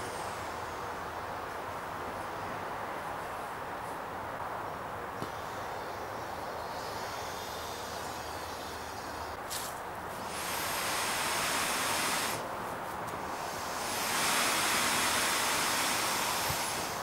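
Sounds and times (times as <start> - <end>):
air rushing from boat valve: 6.7 - 12.5, 13.2 - 17.0.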